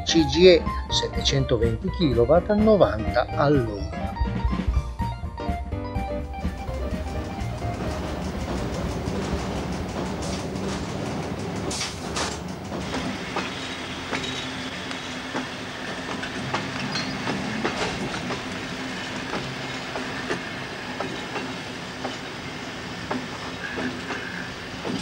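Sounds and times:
steady train hum: 0:00.0 - 0:25.0
train wheels clicking over rail joints: 0:06.4 - 0:25.0.

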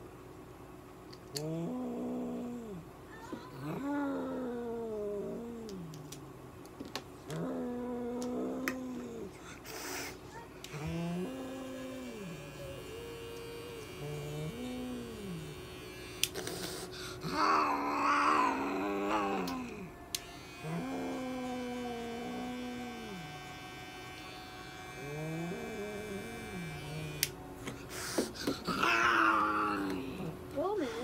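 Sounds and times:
faint steady hum: 0:00.0 - 0:31.0
cat yowling: 0:17.2 - 0:19.8, 0:28.7 - 0:30.3.

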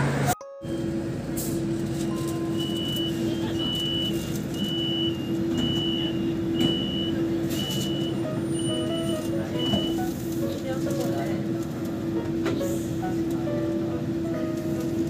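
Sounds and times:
low hum inside train car: 0:00.0 - 0:15.0
short high door warning beeps: 0:02.1 - 0:10.1.

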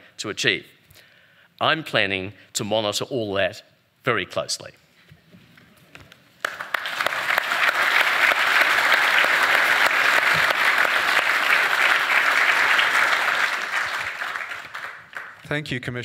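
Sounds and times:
audience applauding: 0:06.4 - 0:15.4.

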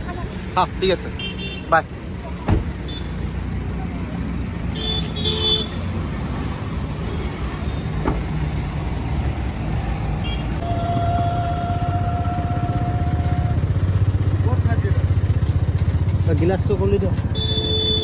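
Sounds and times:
traffic rumble: 0:00.0 - 0:18.0
car horn toots: 0:10.2 - 0:13.2, 0:17.3 - 0:18.0
long horn-like tone: 0:10.6 - 0:13.7.

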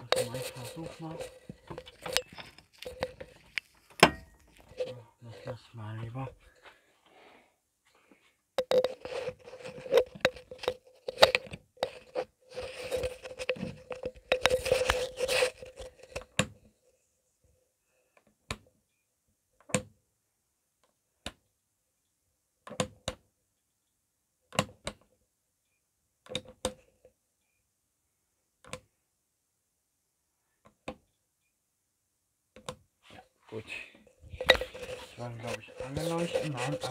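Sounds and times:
rustling and knocking: 0:00.0 - 0:05.0, 0:08.6 - 0:16.3, 0:34.0 - 0:36.9.

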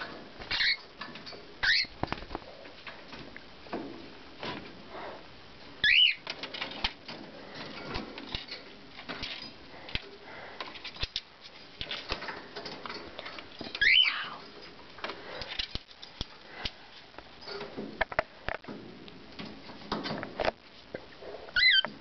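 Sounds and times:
bird clicks and rustles: 0:00.0 - 0:04.7, 0:05.8 - 0:20.8
cockatiel whistled calls: 0:05.8 - 0:06.2.

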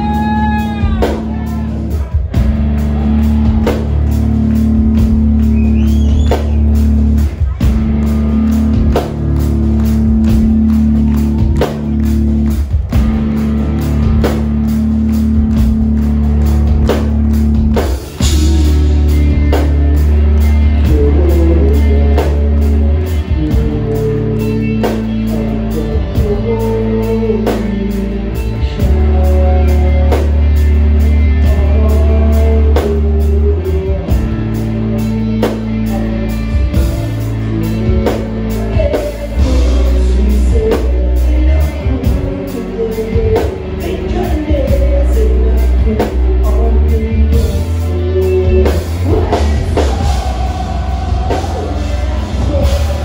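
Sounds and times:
person singing: 0:00.0 - 0:09.2, 0:17.8 - 0:53.0
steady drum beat: 0:00.0 - 0:24.3, 0:47.3 - 0:53.0
bass guitar: 0:00.0 - 0:53.0
electric guitar: 0:00.0 - 0:53.0.

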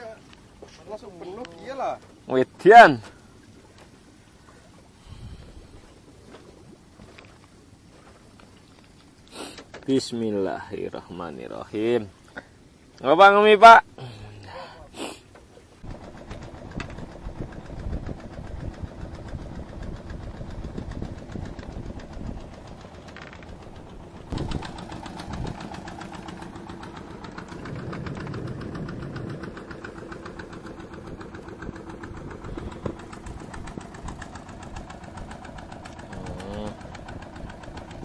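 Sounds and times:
small engine chugging: 0:15.8 - 0:38.0.

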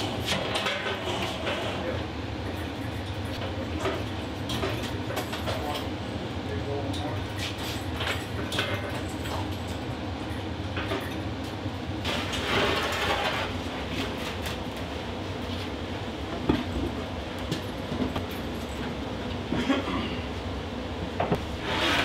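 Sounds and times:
plywood sheet sliding: 0:21.4 - 0:22.0.

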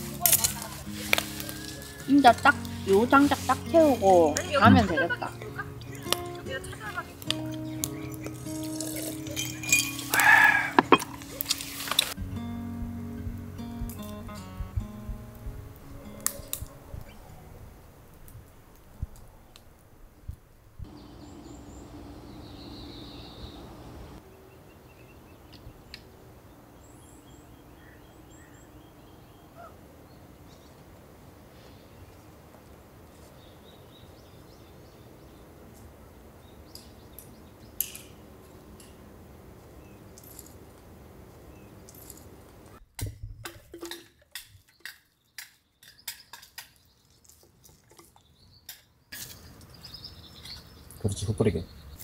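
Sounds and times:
songbirds chirping: 0:00.0 - 0:42.8, 0:43.8 - 0:52.0
hard objects clinking: 0:07.3 - 0:12.2
low hum: 0:12.2 - 0:16.3, 0:20.8 - 0:24.9.

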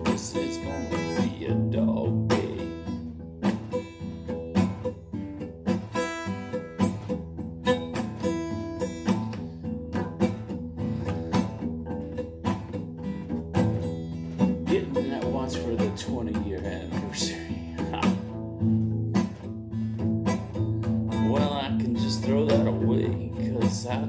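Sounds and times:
acoustic guitar strummed and picked: 0:00.0 - 0:24.0.

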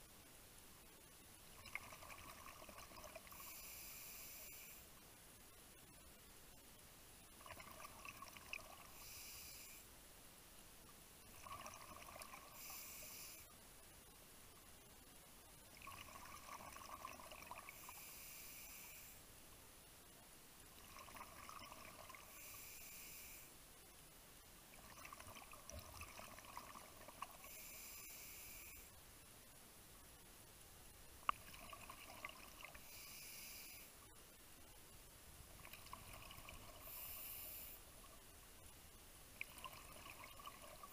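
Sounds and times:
scuba regulator breathing: 0:03.4 - 0:04.9, 0:08.9 - 0:09.8, 0:12.6 - 0:13.5, 0:17.8 - 0:19.2, 0:22.3 - 0:23.5, 0:27.4 - 0:28.9, 0:32.8 - 0:34.0, 0:36.8 - 0:37.8.

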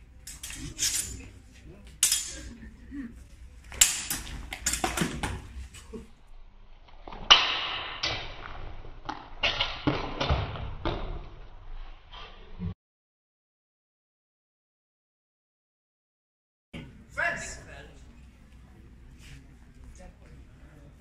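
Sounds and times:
sword blades clashing: 0:00.2 - 0:02.6, 0:03.7 - 0:05.6.

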